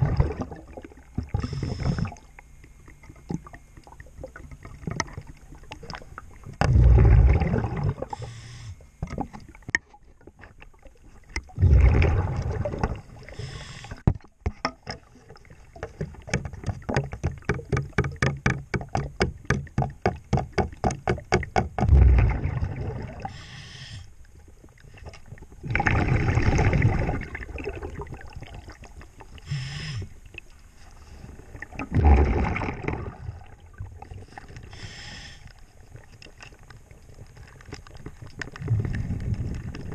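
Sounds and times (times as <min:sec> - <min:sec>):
exhaled bubbles underwater: 0:00.0 - 0:14.0, 0:15.0 - 0:23.6, 0:24.4 - 0:34.8, 0:35.9 - 0:39.9
regulator inhalation hiss: 0:08.1 - 0:08.8, 0:13.3 - 0:14.0, 0:23.3 - 0:24.1, 0:29.4 - 0:30.2, 0:34.6 - 0:35.5
hand tool clicking on hull: 0:15.8 - 0:21.9.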